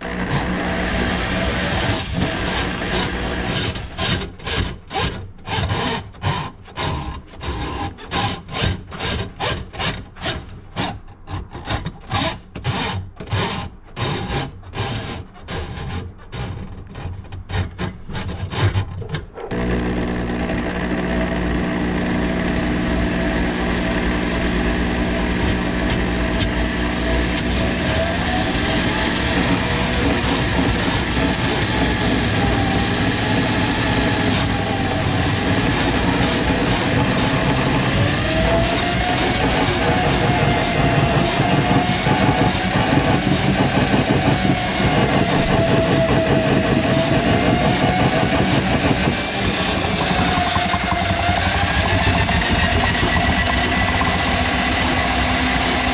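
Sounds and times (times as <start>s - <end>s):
drain auger motor whining: 0.0s - 4.2s, 19.5s - 55.9s.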